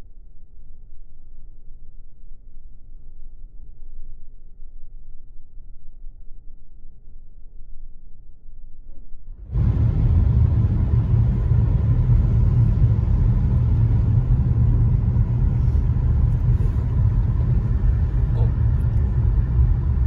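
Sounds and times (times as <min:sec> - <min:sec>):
car engine from inside cabin: 0:09.5 - 0:20.0.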